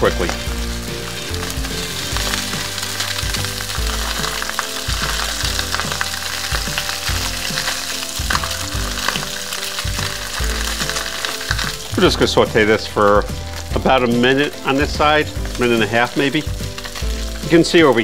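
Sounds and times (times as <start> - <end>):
fish fillets sizzling in a skillet: 0.0 - 18.0.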